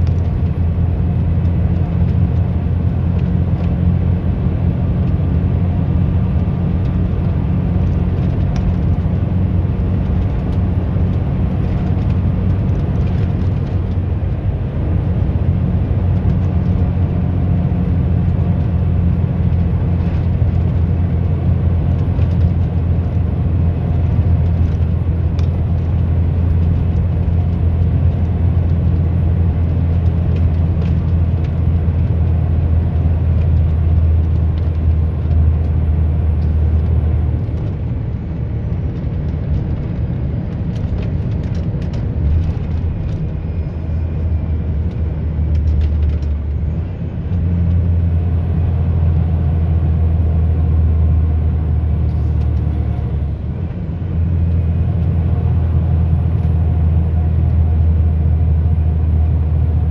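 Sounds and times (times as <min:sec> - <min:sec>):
vehicle engine and tyre rumble: 0:00.0 - 0:59.9.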